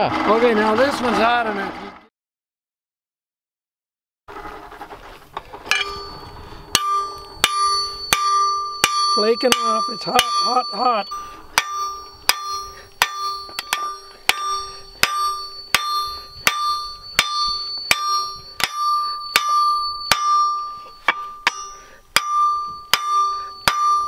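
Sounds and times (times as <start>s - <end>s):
hammer striking on anvil: 5.7s - 24.0s.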